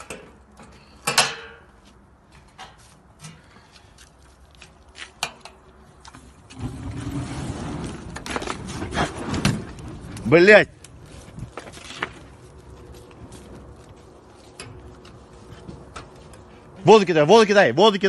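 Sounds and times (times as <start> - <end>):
fire burning with rushing noise: 6.4 - 17.6
fire igniting with whoosh: 6.5 - 12.0.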